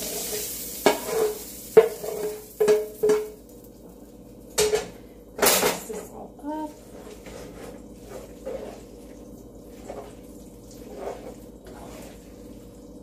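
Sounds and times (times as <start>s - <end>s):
spatula stirring food in pan: 0.0s - 3.2s, 6.7s - 13.0s
steady low hum: 1.8s - 13.0s.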